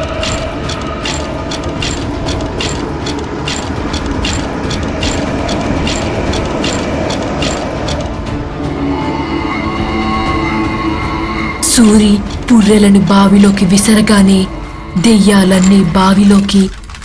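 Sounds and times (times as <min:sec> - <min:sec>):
sharp mechanical ticks: 0:00.0 - 0:08.4, 0:15.2 - 0:17.0.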